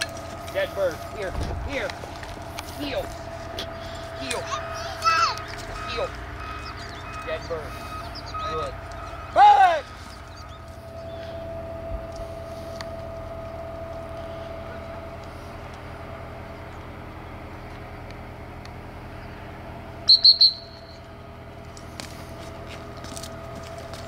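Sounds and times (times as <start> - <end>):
low background rumble: 0.0 - 24.0
dog whistle toots: 20.1 - 21.0.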